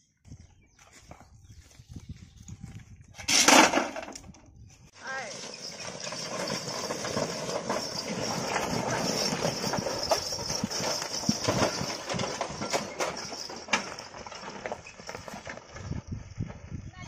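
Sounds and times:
cart clattering over stones: 3.2 - 4.4, 5.0 - 16.6
hooves clopping: 5.2 - 16.7.

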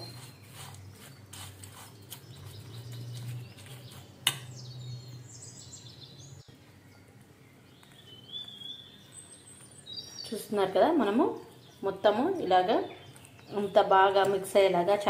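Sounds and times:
spoon stirring in steel bowl: 0.0 - 4.5
faint bird chirps: 0.0 - 10.6.

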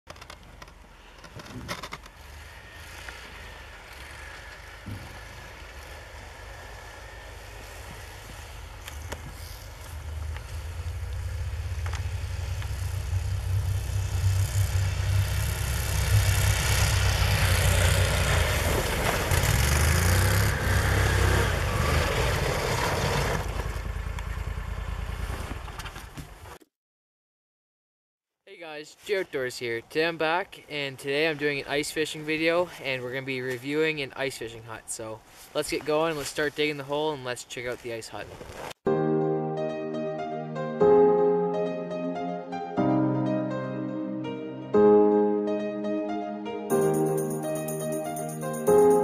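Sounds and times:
vehicle engine rumble: 0.1 - 26.6
tracks hissing through snow: 6.6 - 11.0.

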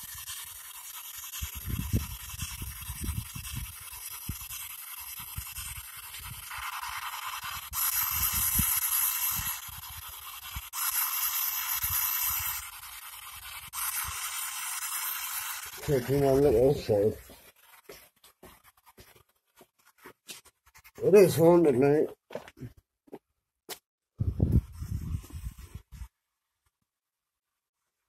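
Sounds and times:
radio static hiss: 13.9 - 17.4.

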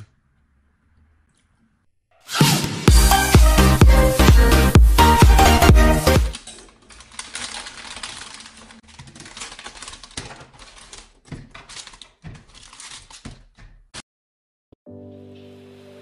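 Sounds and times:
plastic bag crinkling: 6.3 - 13.4.

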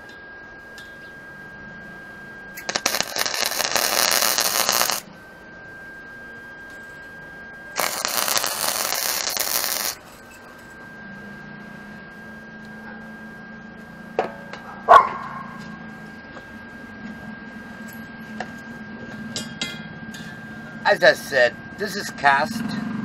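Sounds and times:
welder arc crackling: 2.6 - 5.1, 7.8 - 10.7.

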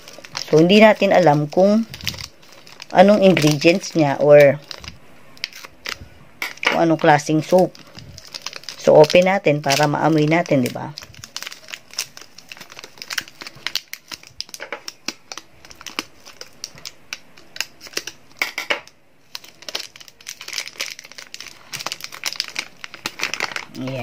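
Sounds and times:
plastic wrapper crinkling: 0.0 - 24.0.

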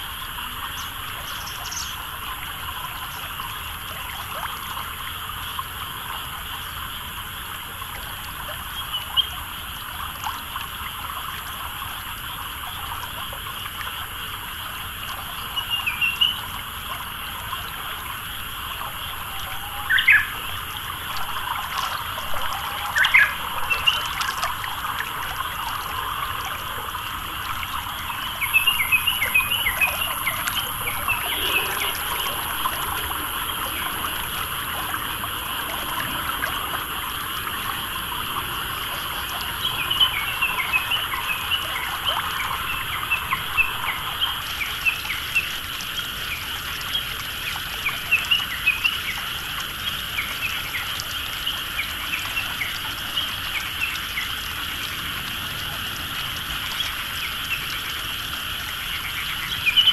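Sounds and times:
frogs croaking: 0.0 - 59.9
insects chirring: 0.0 - 59.9
water trickling: 0.0 - 59.9
small birds chirping: 0.7 - 2.1.

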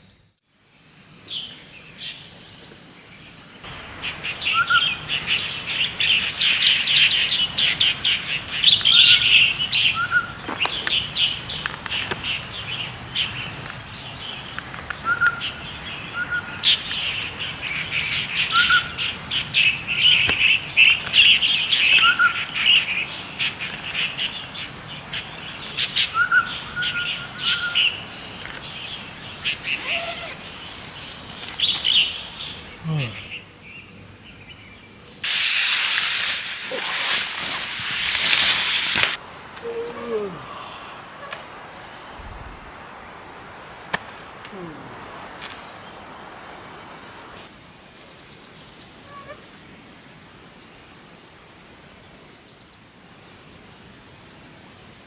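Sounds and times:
small birds chirping: 1.2 - 35.2.

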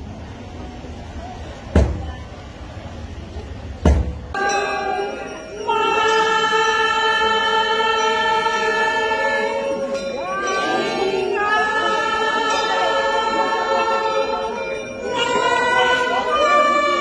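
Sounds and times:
group singing devotional song: 4.4 - 17.0.

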